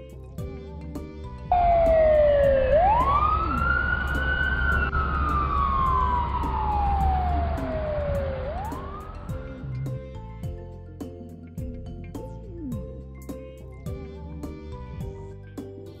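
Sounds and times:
background music: 0.0s - 16.0s
fire engine siren wailing: 1.5s - 9.4s
low rumble: 1.5s - 10.4s.

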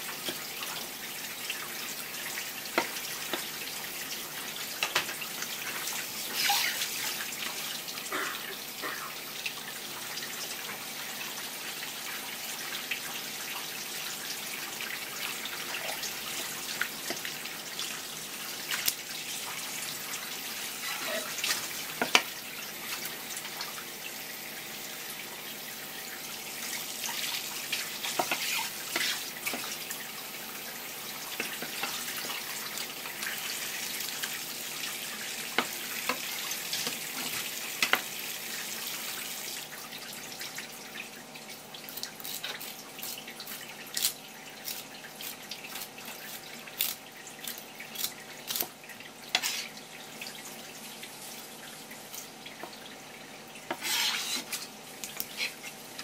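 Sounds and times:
tap water splashing in sink: 21.4s - 22.3s.

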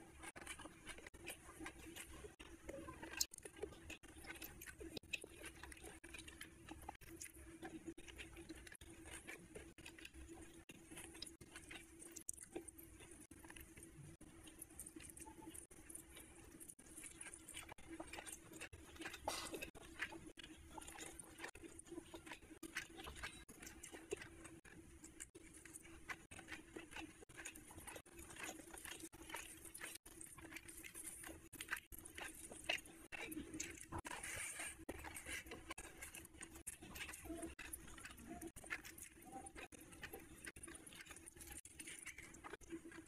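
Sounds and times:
chewing and lip-smacking: 0.0s - 43.0s
fingers squelching food: 0.0s - 43.0s
small clicks and crackles: 0.0s - 43.0s.

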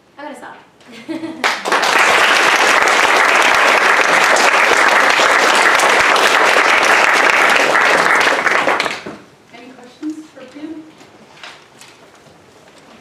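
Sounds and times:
audience applauding: 1.4s - 9.2s.

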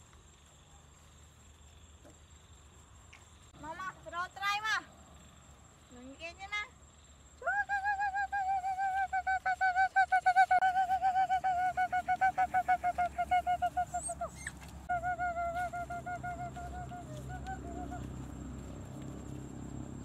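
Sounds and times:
puppy whining: 12.5s - 14.7s.

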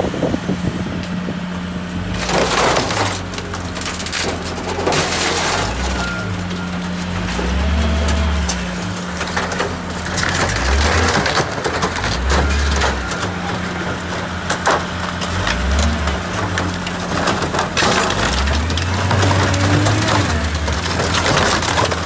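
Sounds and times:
car body crumpling and cracking: 2.0s - 22.0s
glass breaking: 2.2s - 14.0s.

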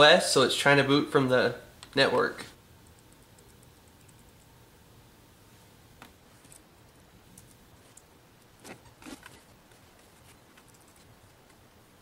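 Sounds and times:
faint handling clicks and rustles: 6.0s - 11.7s.

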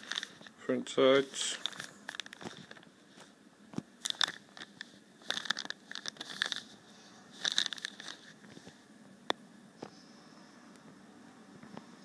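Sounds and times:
plastic bag crinkling: 0.0s - 0.6s, 1.2s - 3.3s, 4.0s - 8.6s.

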